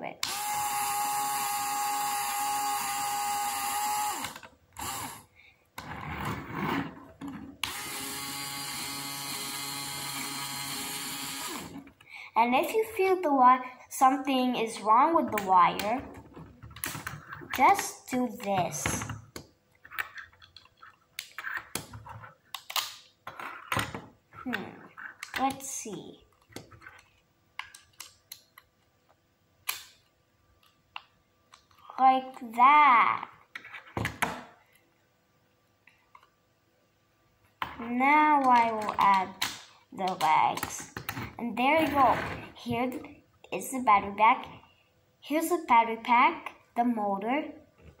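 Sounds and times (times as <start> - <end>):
small electric motor whirring: 0.3 - 5.3, 7.6 - 11.8
plastic parts clicking and knocking: 15.2 - 17.7, 18.5 - 25.6, 26.3 - 31.8, 38.4 - 42.4.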